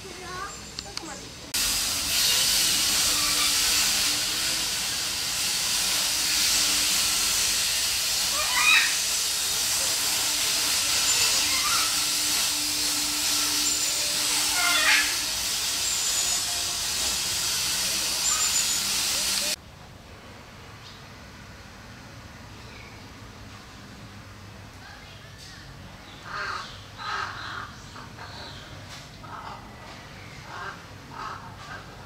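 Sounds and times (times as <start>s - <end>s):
cicadas sizzling hiss: 0.0s - 19.6s
wavering chirps: 18.1s - 19.0s.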